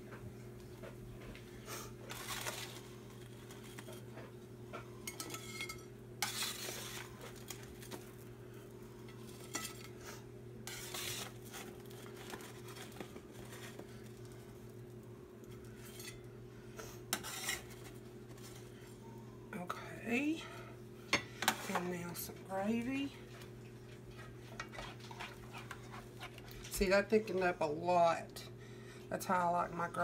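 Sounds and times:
steady low hum: 0:00.0 - 0:30.0
metal spatula scraping baking sheet: 0:02.1 - 0:02.9, 0:05.3 - 0:07.5, 0:09.3 - 0:13.8, 0:17.1 - 0:18.0, 0:24.5 - 0:26.5.

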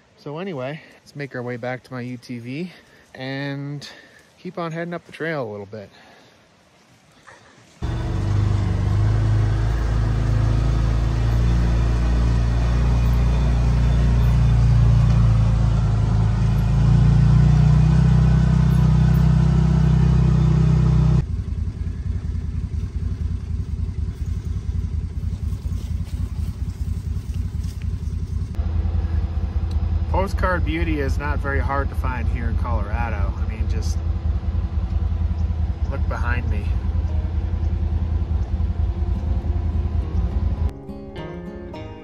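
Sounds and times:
fluttering low rumble: 0:07.8 - 0:40.7
vehicle engine driving: 0:07.8 - 0:41.0.

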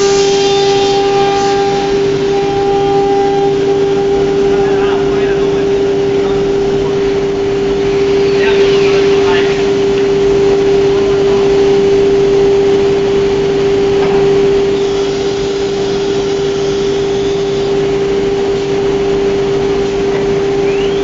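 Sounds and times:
machine whirring: 0:00.0 - 0:21.0
router machine humming: 0:00.0 - 0:21.0.

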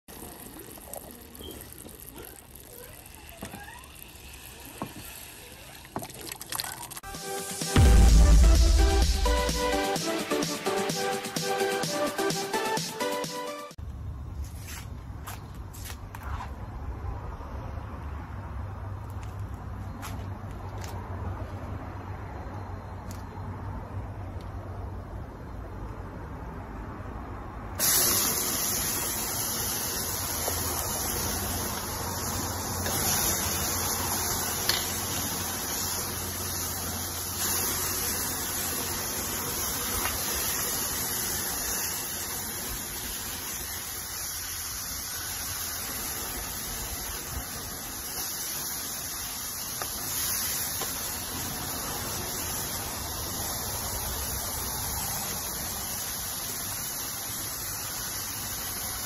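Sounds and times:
meat sizzling in grill pan: 0:27.8 - 0:59.0.

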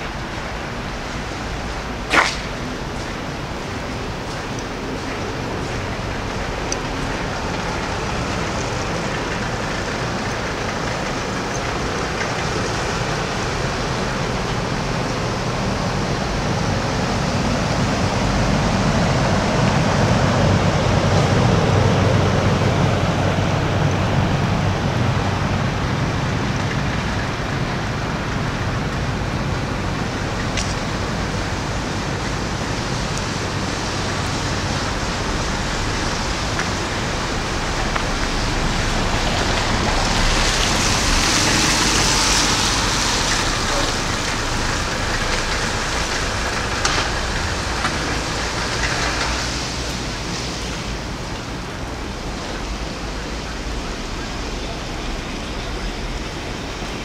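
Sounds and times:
road traffic hiss: 0:00.0 - 0:57.0
vehicle passing: 0:30.0 - 0:57.0.

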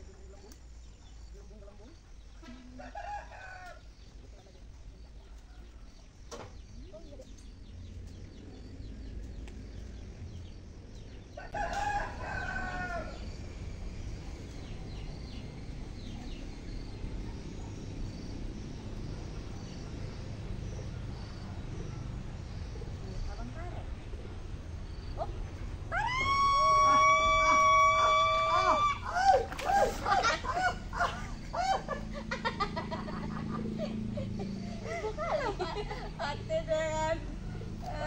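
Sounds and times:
rooster crowing: 0:02.7 - 0:03.9, 0:11.4 - 0:13.3, 0:25.9 - 0:32.0.

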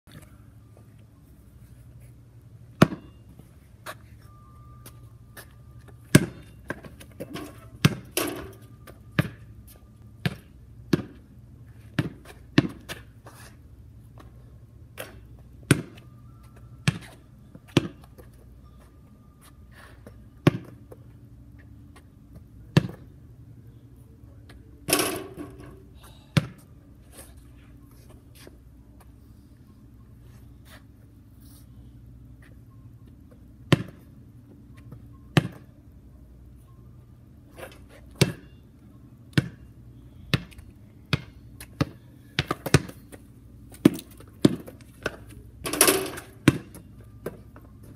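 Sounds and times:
basketball hitting backboard and rim: 0:02.8 - 0:03.1, 0:06.1 - 0:09.5, 0:10.2 - 0:11.2, 0:11.9 - 0:13.0, 0:15.6 - 0:16.0, 0:17.8 - 0:18.0, 0:20.4 - 0:20.8, 0:22.7 - 0:23.0, 0:24.9 - 0:25.8, 0:33.7 - 0:34.0, 0:38.2 - 0:38.5, 0:41.1 - 0:43.0, 0:43.8 - 0:47.4
basketball bouncing on concrete: 0:02.8 - 0:03.2, 0:06.1 - 0:09.5, 0:10.2 - 0:11.3, 0:11.9 - 0:13.1, 0:15.6 - 0:16.0, 0:16.8 - 0:17.1, 0:17.7 - 0:18.1, 0:20.4 - 0:20.9, 0:22.7 - 0:23.1, 0:26.4 - 0:26.6, 0:33.7 - 0:34.0, 0:35.4 - 0:35.7, 0:38.2 - 0:38.5, 0:39.3 - 0:39.7, 0:40.3 - 0:47.4.

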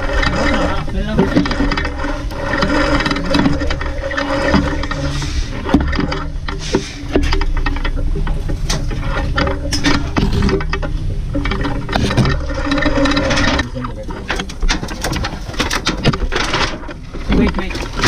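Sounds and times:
irregular knocks: 0:00.0 - 0:18.0
rope rigging clicking and creaking: 0:00.0 - 0:18.0
steady low hum: 0:00.0 - 0:18.0.

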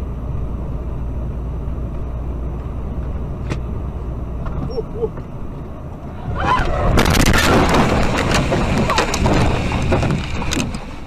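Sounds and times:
road noise: 0:00.0 - 0:11.0
vehicle crashing and crunching: 0:06.2 - 0:11.0.

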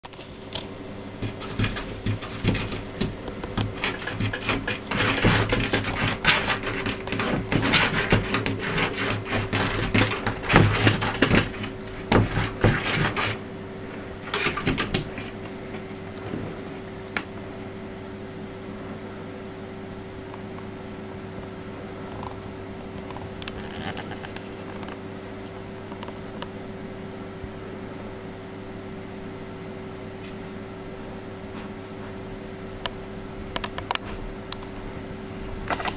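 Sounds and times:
cat claws scraping wood: 0:00.1 - 0:16.5, 0:23.4 - 0:24.7
cupboard door knocking and rattling: 0:01.2 - 0:13.4, 0:14.2 - 0:15.4.

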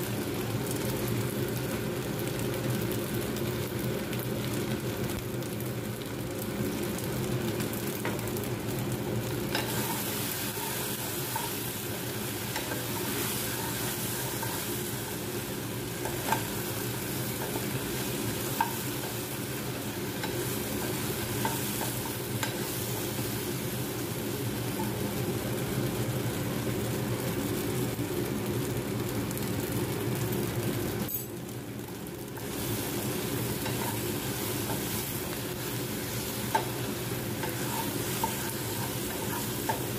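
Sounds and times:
pasta sizzling in frying pan: 0:00.0 - 0:39.9
steady low hum: 0:06.4 - 0:25.7
spatula stirring and scraping: 0:09.5 - 0:23.3, 0:32.4 - 0:39.9.

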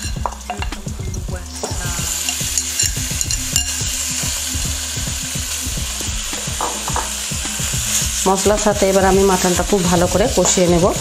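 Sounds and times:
meat sizzling in a wok: 0:00.0 - 0:11.0
spatula knocking and scraping pan: 0:06.0 - 0:07.4.

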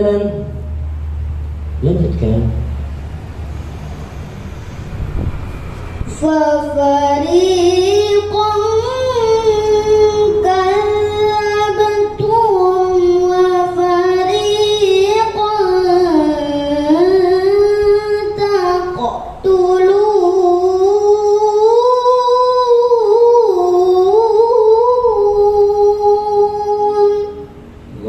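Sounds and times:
girl chanting recitation: 0:06.1 - 0:27.5.

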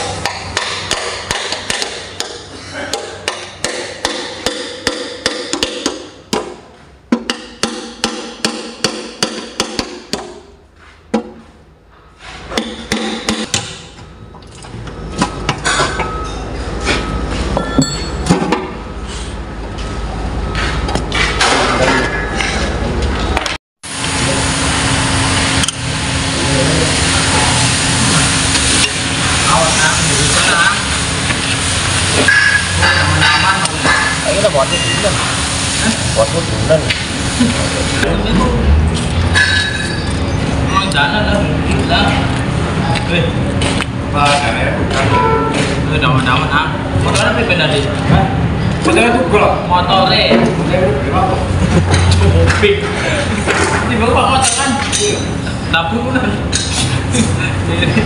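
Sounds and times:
hammer striking steel punch: 0:00.1 - 0:10.5, 0:12.5 - 0:14.0
running machine hum: 0:13.9 - 0:48.8.

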